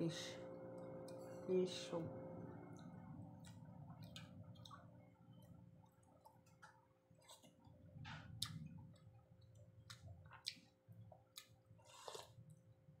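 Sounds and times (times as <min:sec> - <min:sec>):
chewing and mouth noises: 0:02.8 - 0:12.7.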